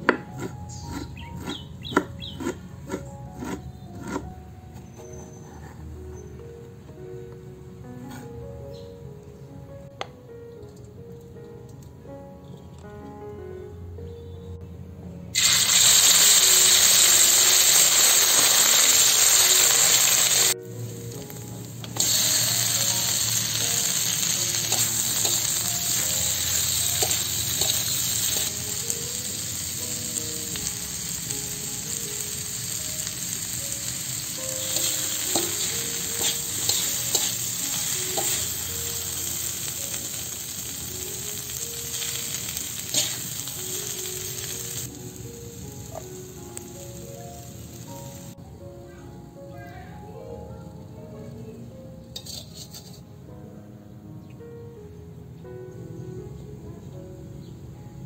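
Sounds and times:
food sizzling in hot oil: 15.4s - 48.4s, 52.2s - 53.0s.

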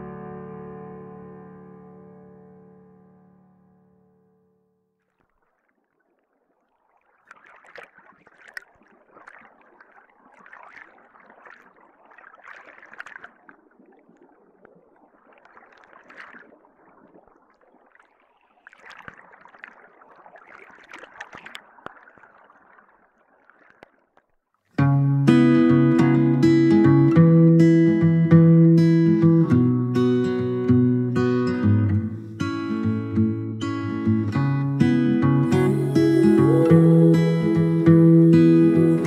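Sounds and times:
muffled underwater rushing and bubbling: 5.1s - 24.2s.

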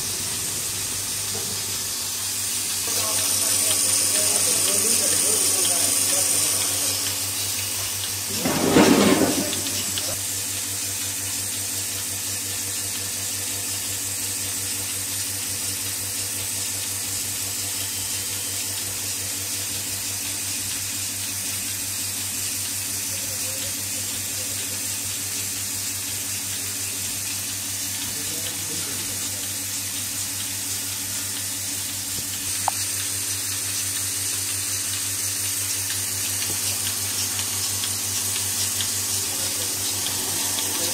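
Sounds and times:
milk and air hissing: 0.0s - 10.2s, 33.8s - 40.9s
vacuum pump humming: 0.0s - 40.9s.

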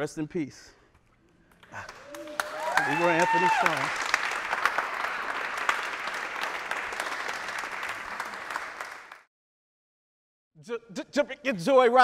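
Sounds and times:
audience applauding: 1.6s - 9.3s.

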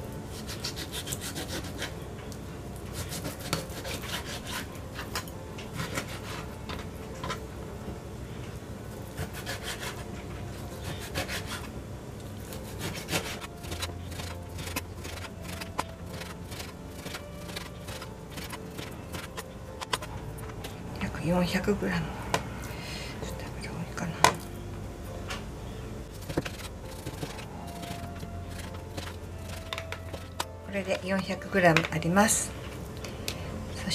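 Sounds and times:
knife sawing through meat: 0.3s - 2.0s, 3.0s - 5.1s, 5.8s - 6.5s, 9.2s - 10.1s, 10.8s - 11.7s, 12.6s - 19.4s, 26.2s - 30.4s.

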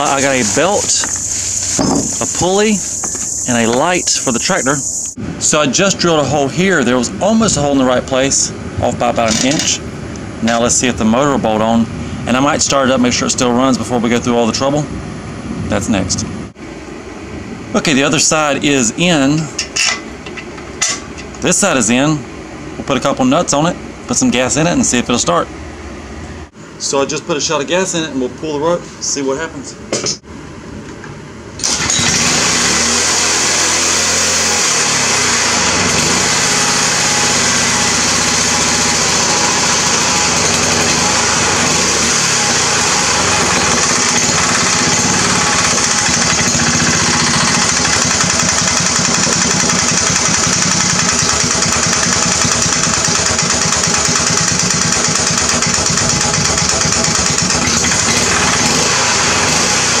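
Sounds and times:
small engine starting and running: 31.6s - 60.0s.

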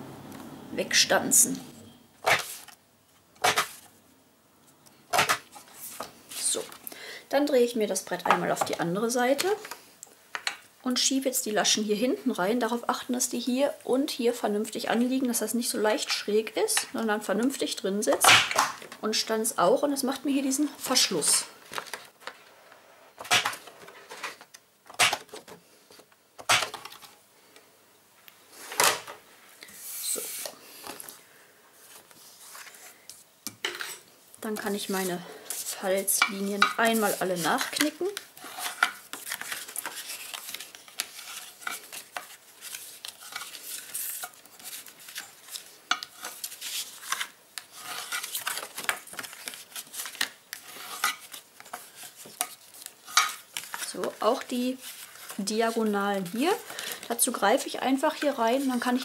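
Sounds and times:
cardstock rustling and scraping: 2.2s - 2.8s, 3.4s - 3.9s, 31.8s - 33.3s, 34.5s - 59.0s.

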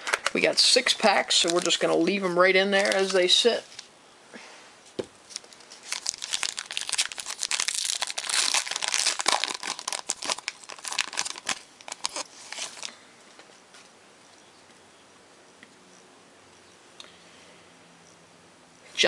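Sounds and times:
foil wrapper crinkling and tearing: 0.0s - 3.9s, 5.2s - 13.0s.

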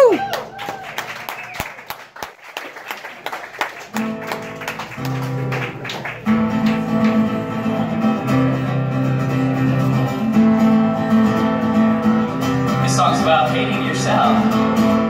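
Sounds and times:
acoustic guitar strumming: 3.9s - 15.0s.

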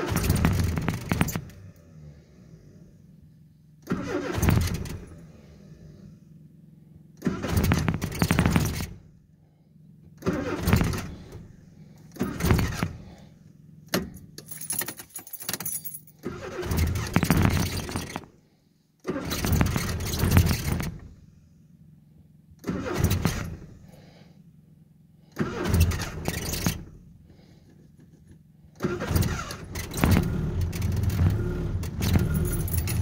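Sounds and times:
car engine cranking: 0.0s - 3.0s, 3.8s - 6.3s, 7.1s - 9.2s, 10.0s - 18.4s, 19.0s - 21.3s, 22.6s - 24.1s, 25.2s - 33.0s
keys jangling: 14.1s - 16.2s, 32.1s - 33.0s.

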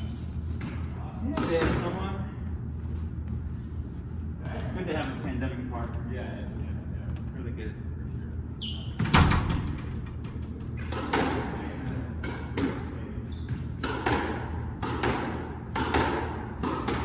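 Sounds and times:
ball hitting court walls: 9.0s - 17.0s
racket striking squash ball: 10.8s - 11.6s, 12.2s - 12.9s, 13.5s - 17.0s.

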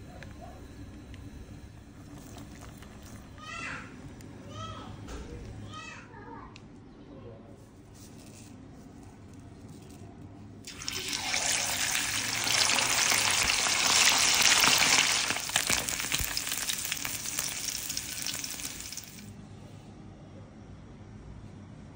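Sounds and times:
fish sizzling in hot oil: 10.7s - 19.3s.

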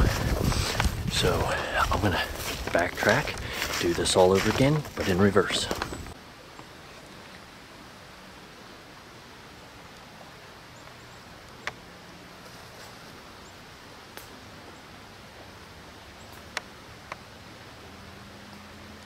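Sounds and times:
faint hiss of woods: 0.0s - 19.0s.

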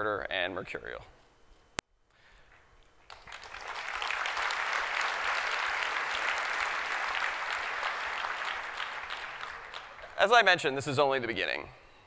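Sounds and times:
audience applauding: 3.1s - 10.6s.

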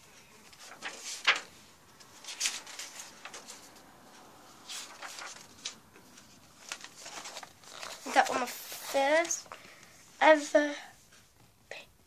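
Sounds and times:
paper pages turning: 0.4s - 9.6s.

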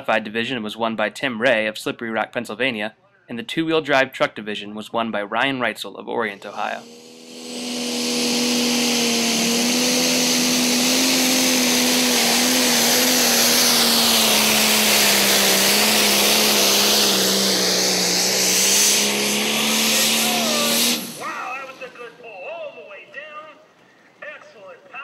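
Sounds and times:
strong hiss: 6.3s - 22.4s
tractor engine at full throttle: 6.4s - 22.6s.

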